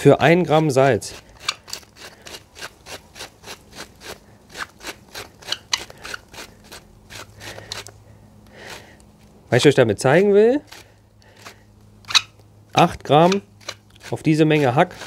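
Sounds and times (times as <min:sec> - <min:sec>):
salt mill grinding: 0:00.4 - 0:07.9, 0:10.1 - 0:15.0.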